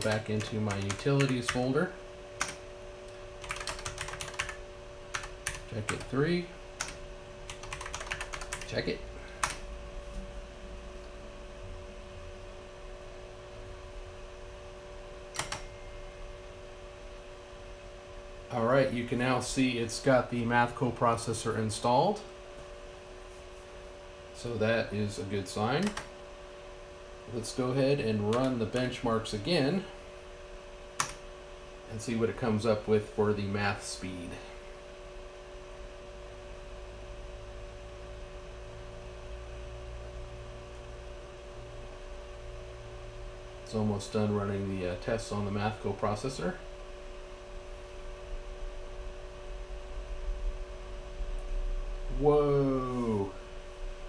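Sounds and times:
fan humming: 0:00.0 - 0:54.0
steady electronic tones: 0:00.0 - 0:54.0.

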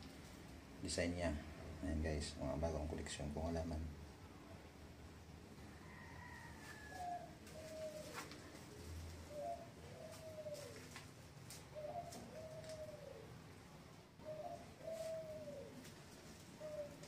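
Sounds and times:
bird soft calls: 0:14.2 - 0:15.8, 0:16.6 - 0:17.0.

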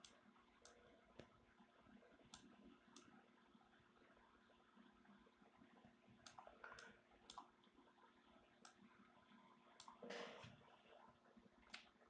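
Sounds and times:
computer mouse clicks: 0:00.0 - 0:01.4, 0:02.2 - 0:03.2, 0:06.2 - 0:07.5, 0:09.8 - 0:10.1.

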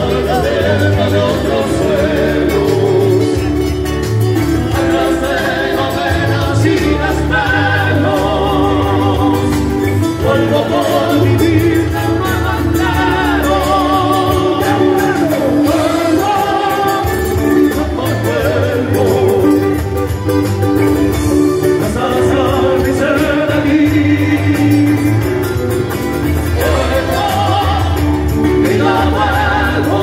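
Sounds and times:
voices singing vibrato melody: 0:00.0 - 0:19.9, 0:26.2 - 0:30.0
acoustic guitars strummed: 0:00.0 - 0:30.0.

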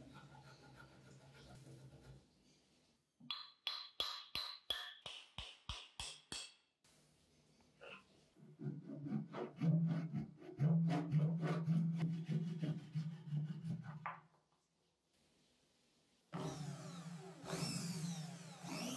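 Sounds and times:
hand saw cutting wood: 0:08.6 - 0:14.0.

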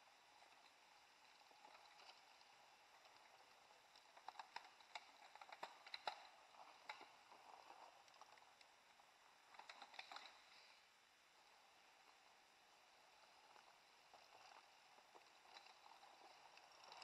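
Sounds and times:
bike clicks and crackles: 0:01.5 - 0:08.8.

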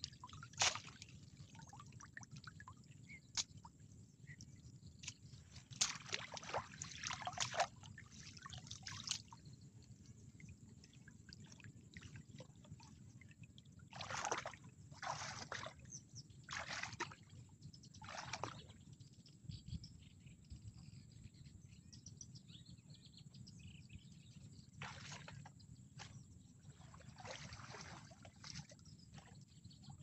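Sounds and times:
muddy water splashing: 0:00.0 - 0:09.4, 0:10.3 - 0:17.3, 0:18.0 - 0:18.7, 0:24.8 - 0:29.4.

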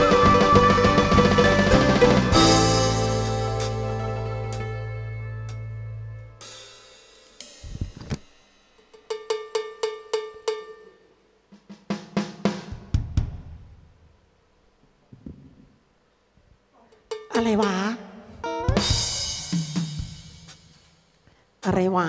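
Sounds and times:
drum hits: 0:00.0 - 0:04.7, 0:11.6 - 0:13.9, 0:18.6 - 0:21.0
pitched drum strokes: 0:00.0 - 0:04.8, 0:18.6 - 0:21.2
cymbal crashes: 0:00.0 - 0:05.2
bass drum hits: 0:00.0 - 0:05.5
band holding a chord: 0:00.0 - 0:06.6.

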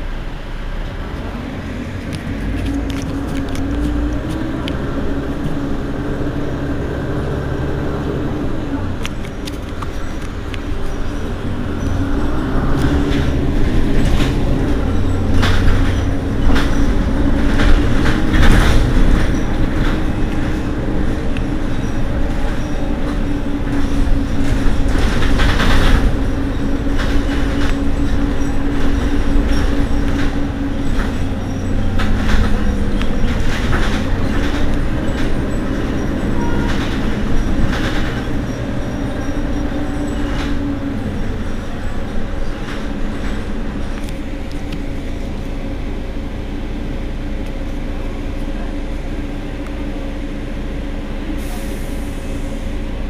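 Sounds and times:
bus engine idling: 0:00.0 - 0:53.0
clanks and knocks: 0:22.3 - 0:38.6.

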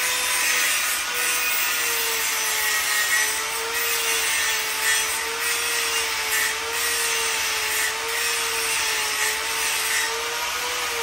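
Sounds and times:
angle grinder grinding metal: 0:00.0 - 0:11.0.

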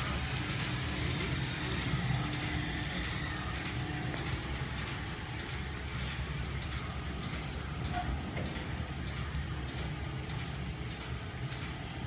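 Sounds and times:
high hiss: 0:00.0 - 0:03.6
steady motor hum: 0:00.0 - 0:12.0.

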